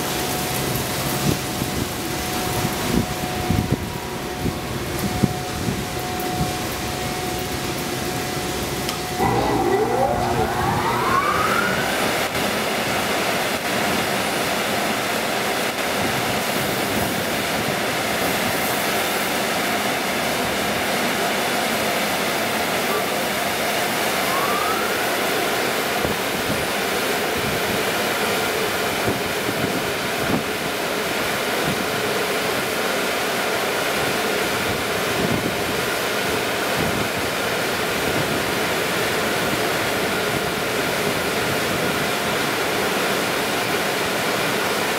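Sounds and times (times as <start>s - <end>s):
motor whine rising: 9.1s - 13.6s, 24.0s - 26.1s
dryer blowers blasting air: 9.2s - 13.2s.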